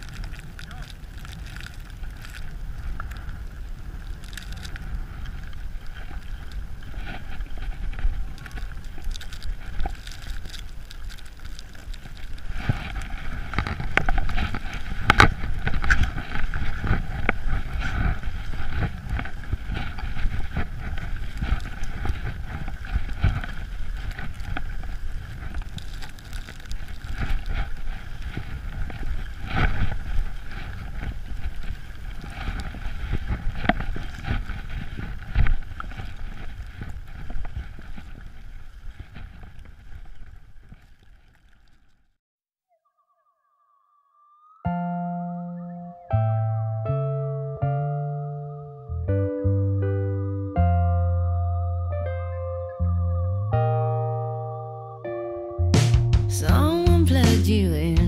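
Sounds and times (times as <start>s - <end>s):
wind buffeting microphone: 0.0s - 40.8s
skis scraping on snow: 0.0s - 42.0s.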